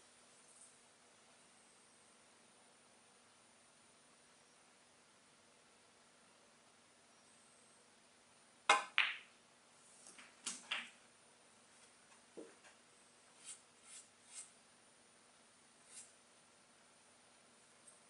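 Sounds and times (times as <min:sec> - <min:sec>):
cue tip striking ball: 0:08.7 - 0:09.3
snooker balls clicking: 0:08.7 - 0:09.3, 0:10.1 - 0:11.0.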